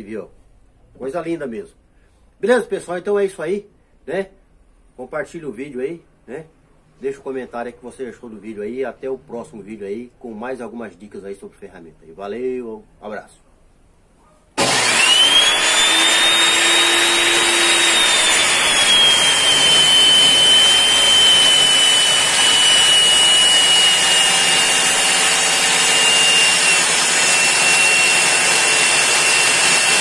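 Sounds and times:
table saw motor whine: 14.6 - 30.0.

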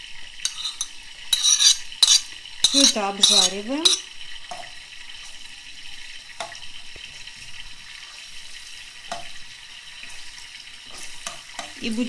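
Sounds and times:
garlic sizzling in oil: 0.0 - 12.0
metal spoon knocking on pan: 0.5 - 4.6.

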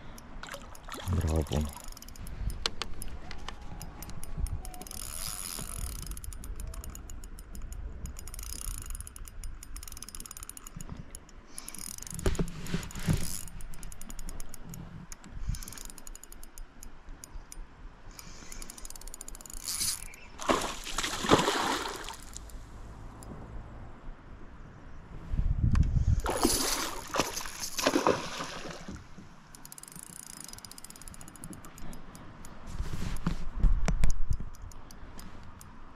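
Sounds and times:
fishing reel clicking: 1.6 - 12.3, 13.2 - 20.2, 29.5 - 32.2, 34.1 - 35.7
fish splashing: 20.0 - 22.5, 26.2 - 29.1.

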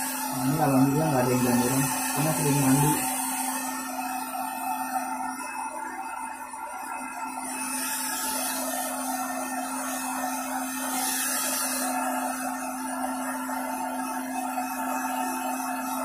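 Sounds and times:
hair dryer running: 0.0 - 16.0.

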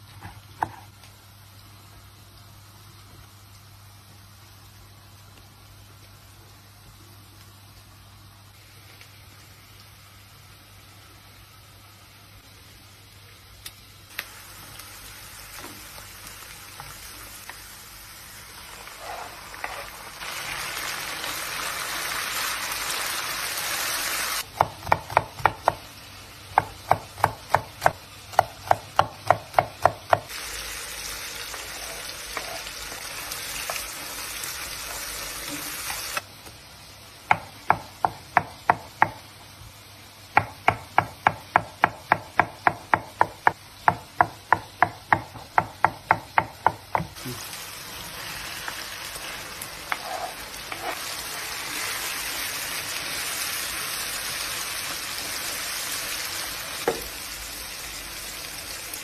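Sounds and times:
food sizzling in frying pan: 0.0 - 40.9, 46.6 - 59.0
knife chopping on wooden board: 0.2 - 0.9, 24.5 - 25.8.

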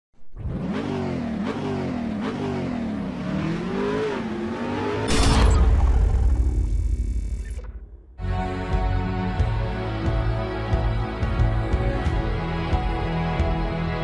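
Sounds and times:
car engine accelerating: 0.3 - 7.9
deep boom: 5.1 - 8.2.

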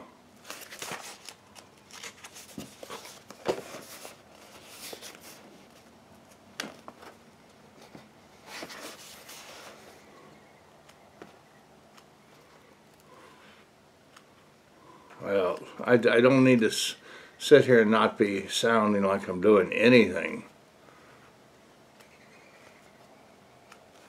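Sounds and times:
book pages rustling: 0.4 - 10.0.

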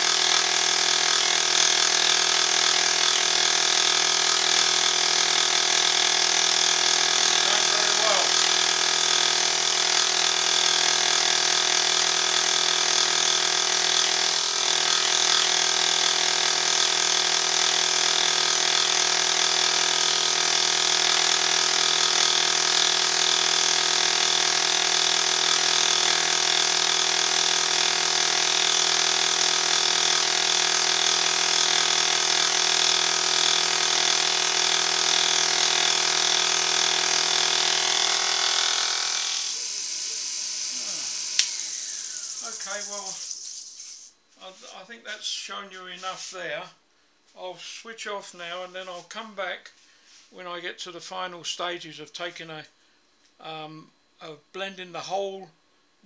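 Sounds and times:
milling machine cutting metal: 0.0 - 43.3.

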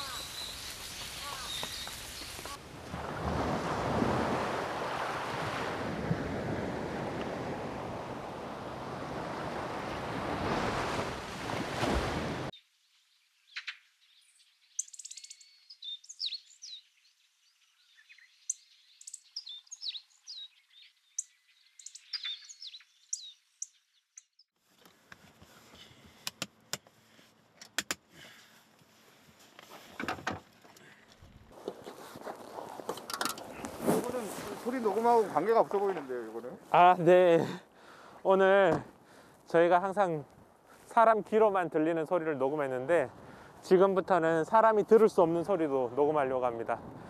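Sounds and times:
small birds chirping: 0.0 - 2.6, 12.6 - 24.5
surf washing onto beach: 0.0 - 12.5, 33.7 - 36.1
equipment cases clicking and knocking: 30.0 - 30.5.

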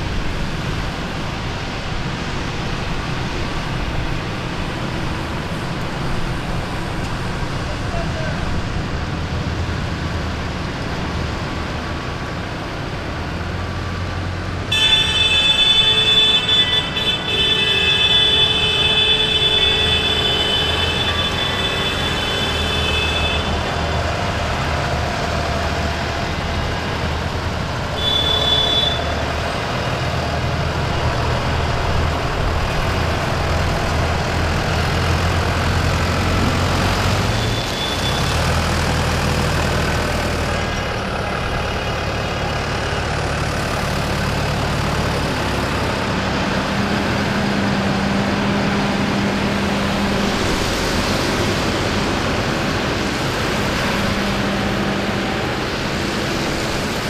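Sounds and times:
tractor diesel engines: 0.0 - 57.0
vehicle horn: 14.7 - 23.8, 28.0 - 29.3, 37.4 - 38.4.

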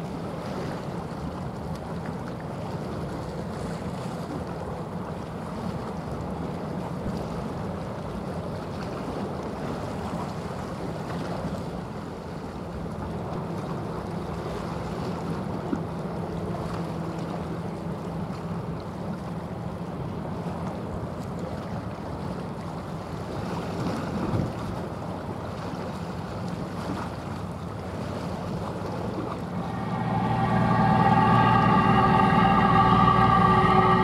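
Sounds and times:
ship diesel engine drone: 12.8 - 21.2, 29.0 - 34.0.

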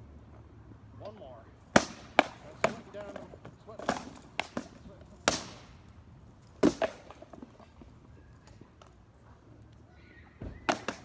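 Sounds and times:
sword blows cracking on shields: 1.8 - 3.1, 3.8 - 5.8, 6.6 - 7.2, 10.6 - 11.0.

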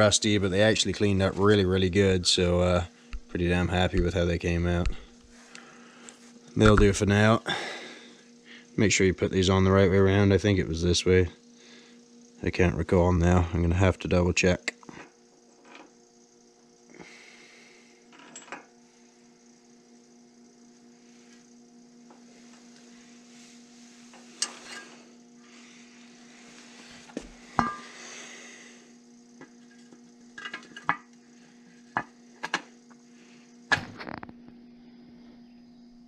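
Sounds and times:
freezer humming: 0.0 - 36.0
steel brake parts clinking: 27.6 - 27.9.

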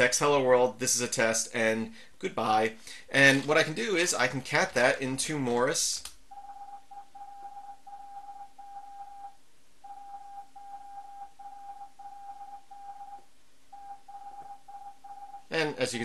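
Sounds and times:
morse code beeps: 6.3 - 15.5.

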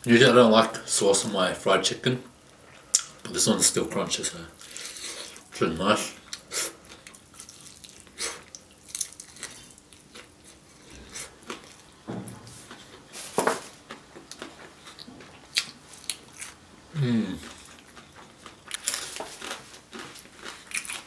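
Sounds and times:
crunchy chewing: 6.2 - 12.0, 12.6 - 16.6, 17.3 - 21.0.

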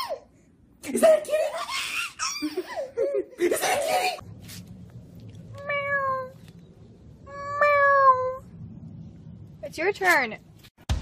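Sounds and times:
baby laughing: 1.0 - 4.2.

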